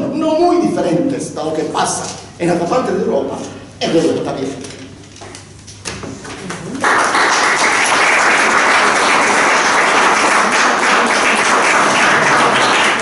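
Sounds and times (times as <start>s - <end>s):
audience applauding: 6.7s - 13.0s.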